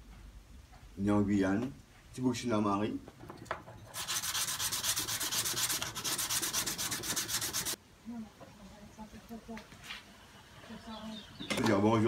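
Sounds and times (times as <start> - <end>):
hand sanding shell: 3.9 - 7.8.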